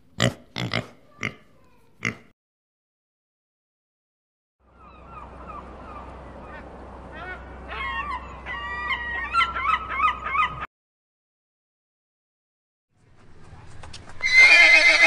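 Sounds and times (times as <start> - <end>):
waterfowl honking and calling: 4.8 - 10.7.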